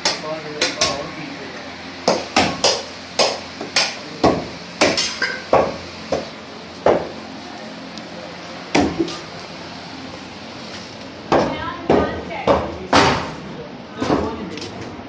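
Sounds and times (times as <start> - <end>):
cleaver chopping meat and bone: 0.0 - 1.0, 2.0 - 7.2, 11.3 - 13.3.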